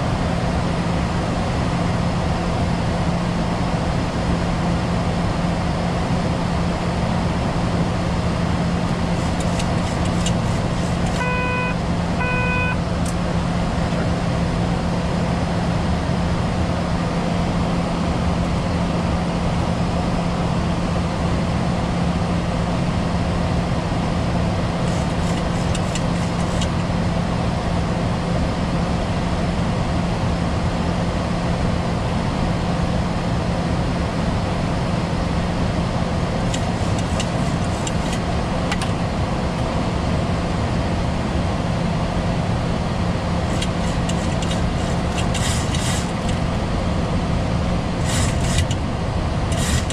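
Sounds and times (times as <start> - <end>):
aircraft cockpit hum: 0.0 - 49.9
short electronic beeps: 11.1 - 12.8.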